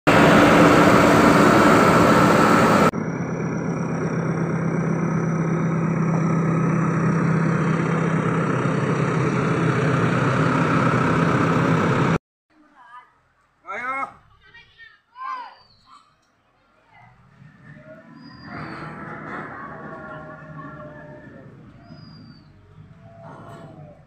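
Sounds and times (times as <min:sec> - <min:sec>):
diesel engine running: 0:00.1 - 0:12.2, 0:17.1 - 0:24.0.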